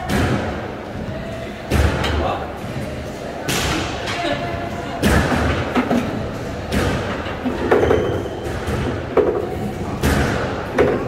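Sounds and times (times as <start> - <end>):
squash ball thudding on walls: 5.0 - 11.0.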